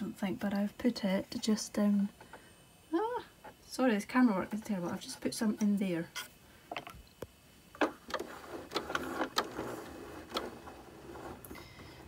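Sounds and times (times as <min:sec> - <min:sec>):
faint mechanical whirr: 0:00.0 - 0:12.0.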